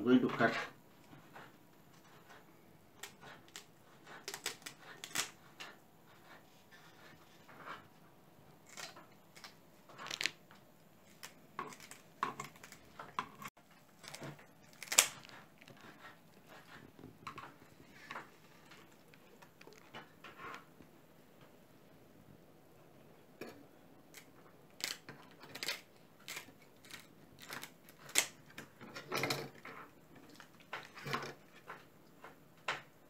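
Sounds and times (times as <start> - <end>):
scissors snipping fish skin: 3.0 - 5.3, 14.0 - 15.3.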